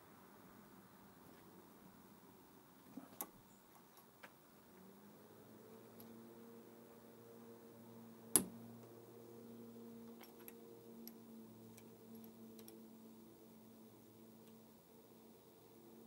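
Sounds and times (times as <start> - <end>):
low hum: 4.5 - 16.0.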